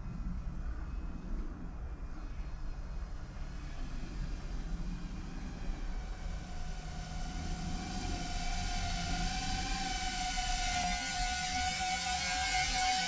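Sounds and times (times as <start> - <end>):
wind rumble: 0.0 - 13.0
drone motors whining: 6.2 - 13.0.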